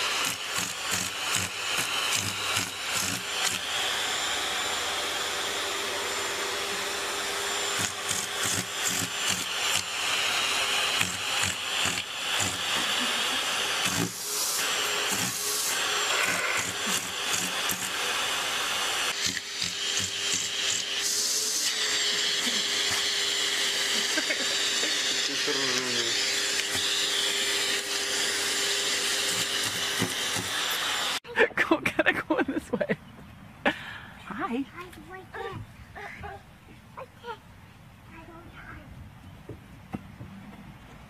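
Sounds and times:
vacuum cleaner running: 0.0 - 31.2.

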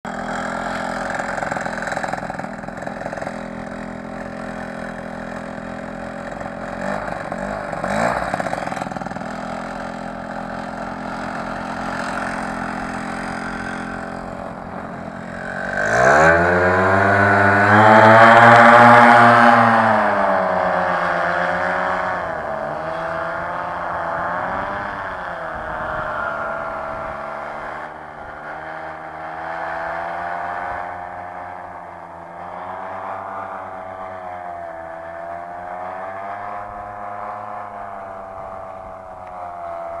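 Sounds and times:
paramotor engine and propeller: 0.0 - 40.0.

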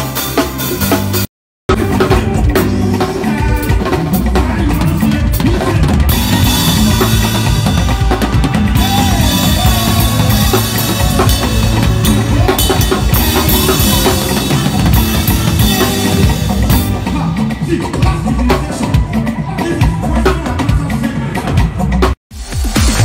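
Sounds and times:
drum kit solo: 0.0 - 23.0.

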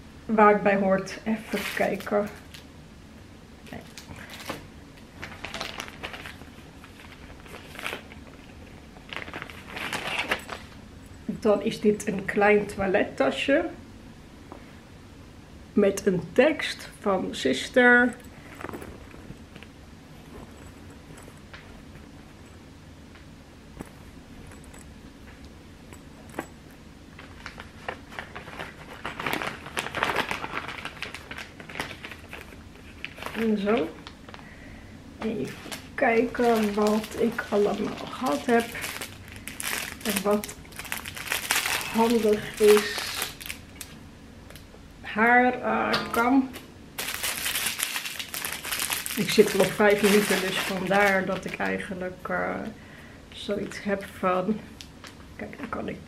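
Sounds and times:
packaging crinkling: 3.8 - 10.8, 27.1 - 34.6, 35.4 - 44.6, 46.5 - 51.8.

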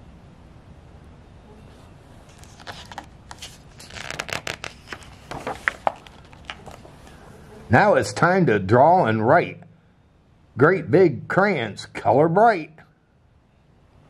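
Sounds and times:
book pages rustling: 2.2 - 7.2.

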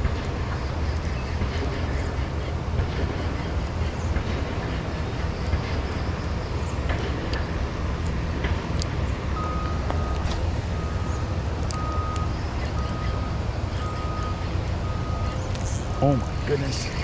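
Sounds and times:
vehicle engine humming: 0.0 - 17.0
reversing alarm beeping: 9.4 - 17.0.

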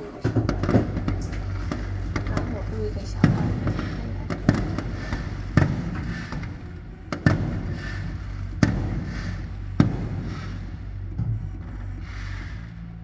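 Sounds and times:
fireworks bangs: 0.0 - 12.4
low rumble: 0.0 - 13.0.

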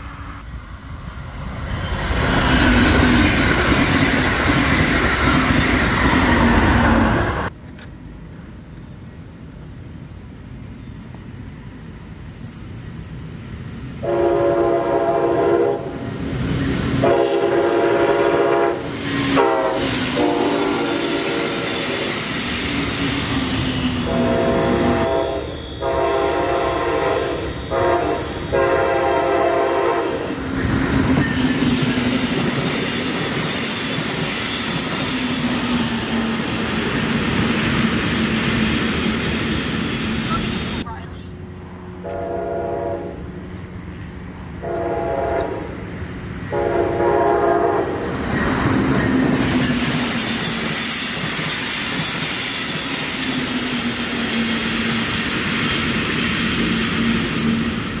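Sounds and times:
train passing rumble: 0.0 - 58.0
wheels clacking on rails: 1.4 - 8.0, 30.2 - 42.2, 45.6 - 58.0
train horn blasts: 14.0 - 16.0, 17.0 - 21.6, 24.0 - 30.4, 42.0 - 43.3, 44.6 - 45.8, 46.5 - 48.0.

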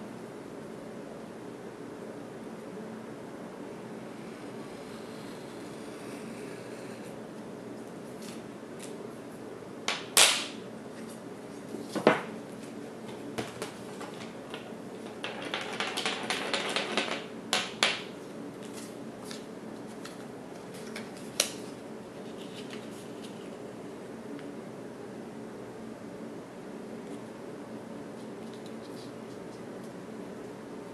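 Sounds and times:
steady low hum: 0.0 - 15.8.

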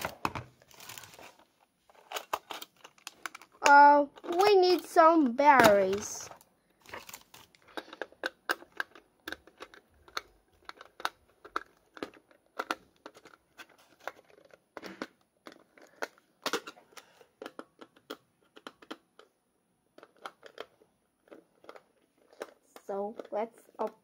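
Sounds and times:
plastic packaging crinkling: 0.0 - 17.2
hands handling plastic toy: 0.0 - 24.0.

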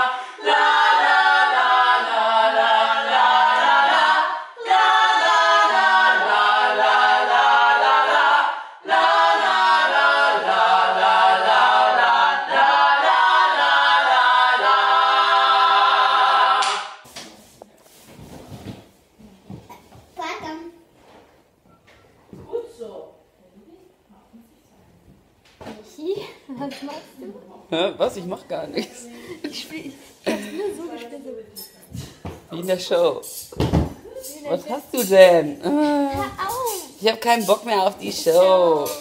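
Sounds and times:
voices singing in harmony: 0.0 - 17.0
faint room sounds: 0.0 - 39.0.

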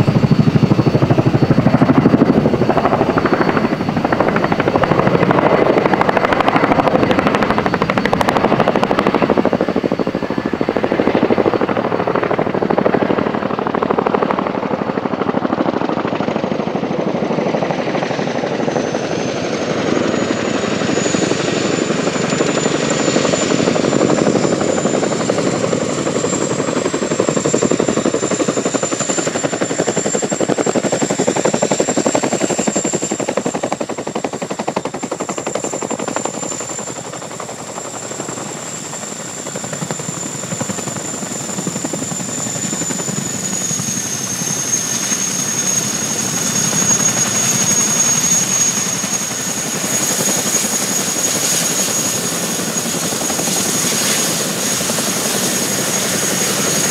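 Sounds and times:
turbine engine whine: 0.0 - 56.9
helicopter rotor blade slap: 35.0 - 56.9.

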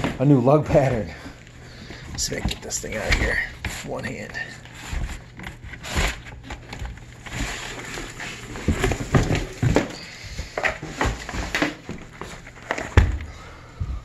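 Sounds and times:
cardboard scraping and rustling: 1.8 - 13.2.

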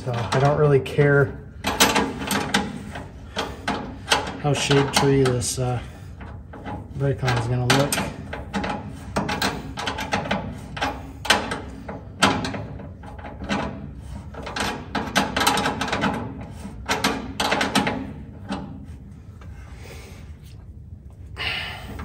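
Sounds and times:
metal tubing clicks and knocks: 1.6 - 5.5, 6.2 - 18.7.

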